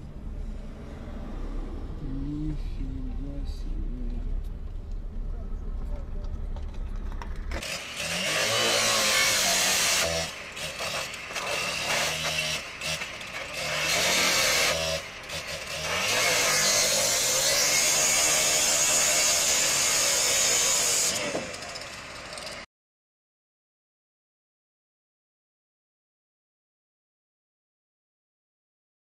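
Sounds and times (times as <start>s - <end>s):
power saw cutting sheet metal: 7.5s - 22.7s.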